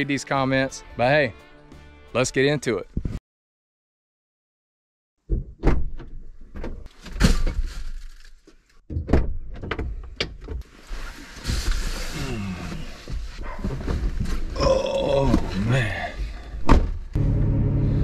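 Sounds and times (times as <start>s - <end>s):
rustling: 6.9s - 8.8s, 10.6s - 14.6s
knocks thumps and rattles: 8.9s - 10.6s.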